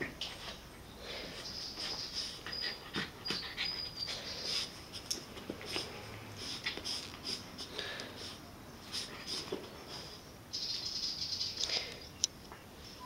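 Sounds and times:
dog snorting and snuffling: 1.8s - 10.2s
dog whining: 2.2s - 4.6s.

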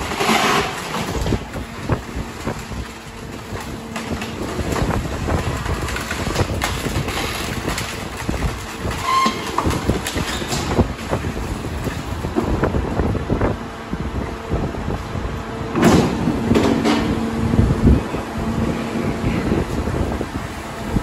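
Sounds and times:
wood cracking being crushed: 0.0s - 12.8s
garbage truck running: 0.0s - 21.0s.

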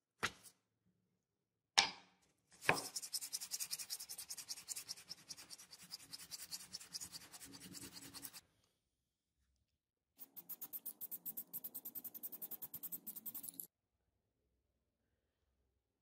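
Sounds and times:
scratchy sanding strokes: 2.6s - 8.4s, 10.2s - 13.6s.

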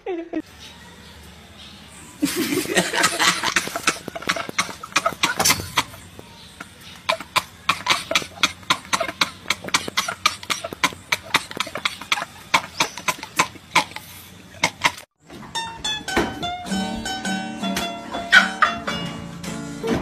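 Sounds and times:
men laughing hard: 0.0s - 0.4s, 2.2s - 13.8s, 18.0s - 19.0s
plucked string music: 15.4s - 20.0s.

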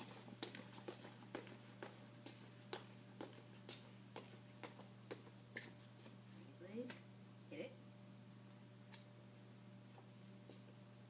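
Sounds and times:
footsteps on concrete floor: 0.0s - 6.3s, 9.9s - 10.8s
low electrical hum: 0.0s - 11.0s.

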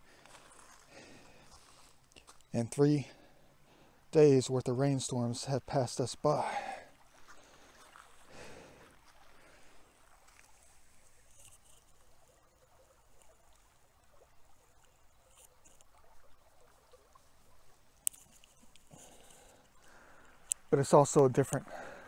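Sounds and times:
footsteps on wet gravel: 0.1s - 2.6s, 7.1s - 10.7s.

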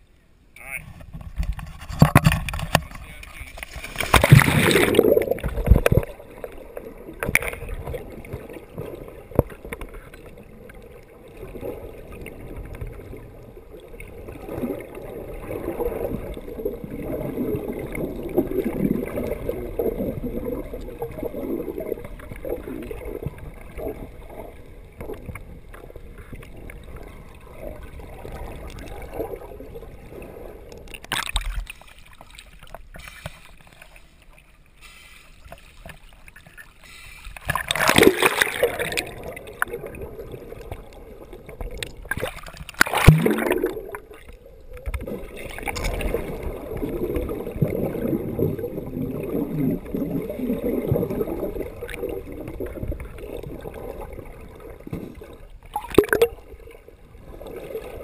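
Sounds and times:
water sloshing and gurgling: 0.0s - 58.0s
bursts of rushing water: 2.7s - 24.5s, 34.9s - 54.4s.

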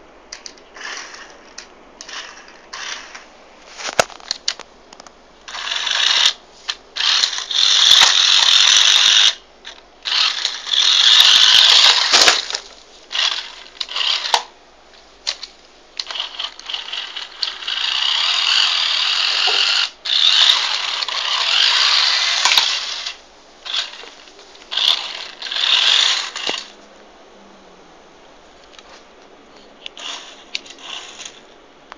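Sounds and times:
toy car motor whirring: 0.4s - 3.3s, 5.5s - 14.5s, 15.3s - 26.8s, 29.8s - 31.5s.

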